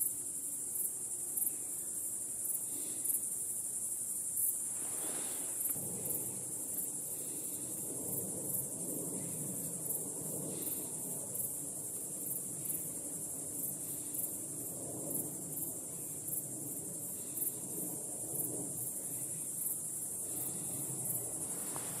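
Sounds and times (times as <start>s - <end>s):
insects chirping: 0.0s - 22.0s
low steady background rush: 0.1s - 22.0s.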